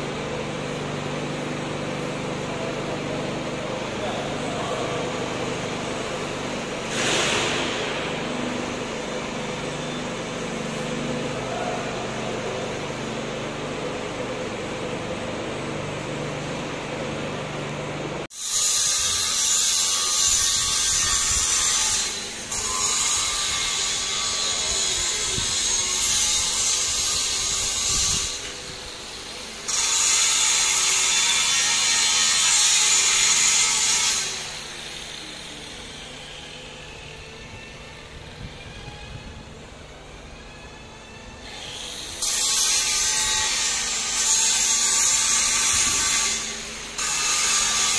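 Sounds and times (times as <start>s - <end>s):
ceiling fans humming: 0.0s - 47.9s.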